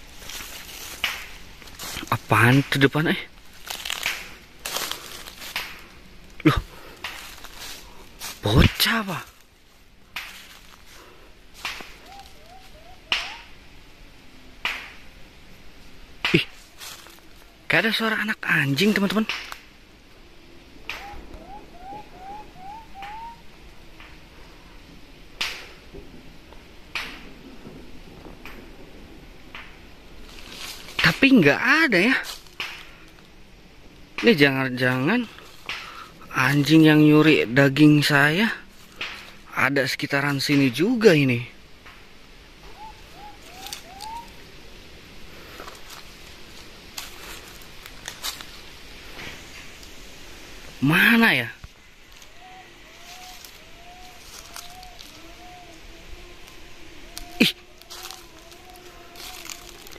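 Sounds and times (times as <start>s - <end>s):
sharp snaps: 0.2s - 9.4s, 10.1s - 10.8s, 11.5s - 13.6s, 14.6s - 15.1s, 16.2s - 17.2s, 18.9s - 19.7s, 20.8s - 21.6s, 22.7s - 24.2s, 25.4s - 25.8s, 26.9s - 27.3s, 29.5s - 29.9s, 32.3s - 33.2s, 34.1s - 36.8s, 38.7s - 39.5s, 42.6s - 44.5s, 51.6s - 55.6s, 56.4s - 59.9s.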